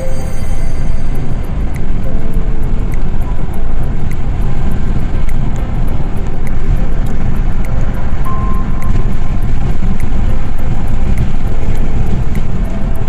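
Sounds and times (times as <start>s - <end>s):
car road and wind noise: 0.0s - 13.0s
faint background music: 0.0s - 13.0s.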